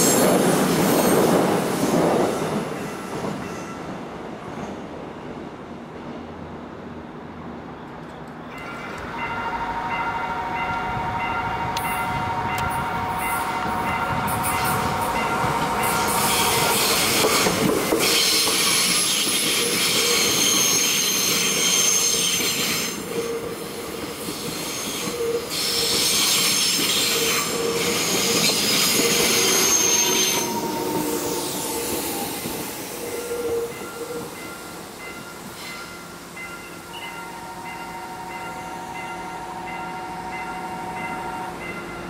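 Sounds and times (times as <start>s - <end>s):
train wheels squealing: 0.0s - 3.9s, 15.8s - 37.2s
train running noise: 0.0s - 42.0s.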